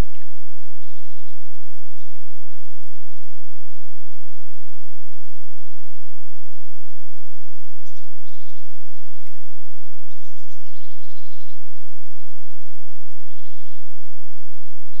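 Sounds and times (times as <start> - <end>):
small bird trilling: 0.8 - 1.4, 7.8 - 8.7, 10.1 - 11.6, 13.3 - 13.8.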